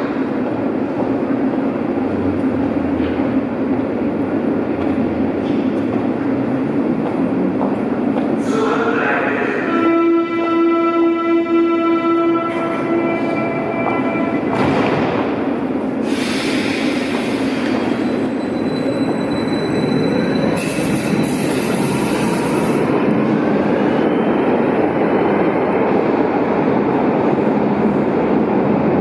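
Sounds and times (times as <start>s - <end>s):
train wheels rumbling: 0.0s - 29.0s
faint wheel squeal: 17.8s - 21.9s.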